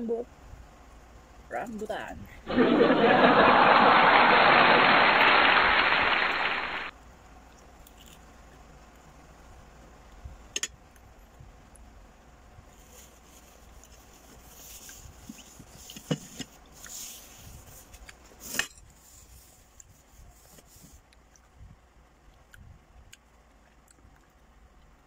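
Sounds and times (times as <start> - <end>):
soft mouth and handling noises: 7.4 - 9.2, 12.6 - 25.0
person chewing fruit: 7.6 - 8.7, 22.2 - 25.0.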